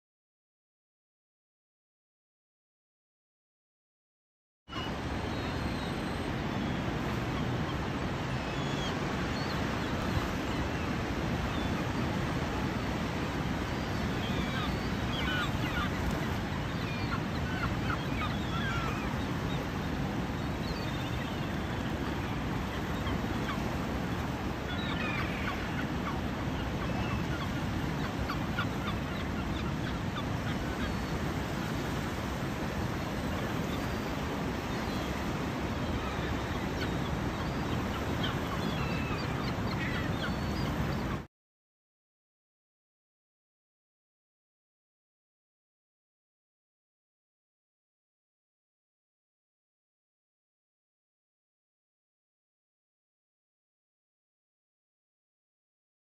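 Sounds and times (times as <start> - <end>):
gulls calling: 4.7 - 41.3
surf: 4.7 - 41.3
wind: 4.7 - 41.3.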